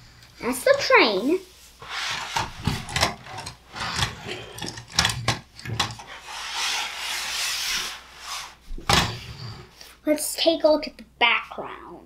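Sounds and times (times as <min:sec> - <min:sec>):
plastic board sliding across table: 0:01.8 - 0:09.8.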